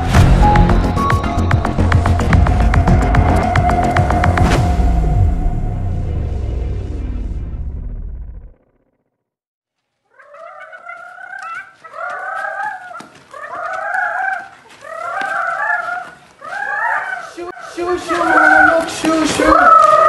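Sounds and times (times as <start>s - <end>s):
music: 0.0s - 6.8s
chickens clucking: 10.1s - 20.0s.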